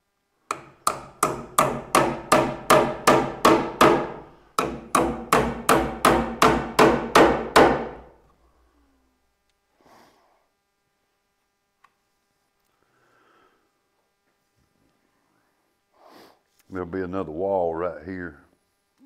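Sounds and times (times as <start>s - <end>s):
hammer driving nails into wood: 0.5s - 8.1s.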